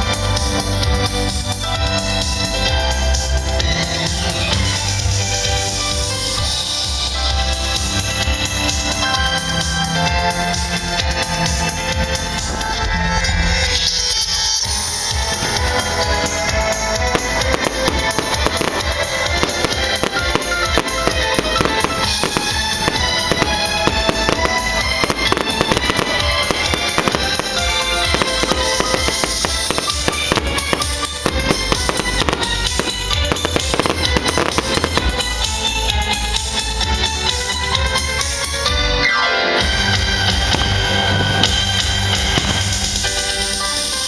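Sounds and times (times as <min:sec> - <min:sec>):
rock song with full band: 0:00.0 - 0:44.0
drum kit beat: 0:14.3 - 0:38.6, 0:39.6 - 0:44.0.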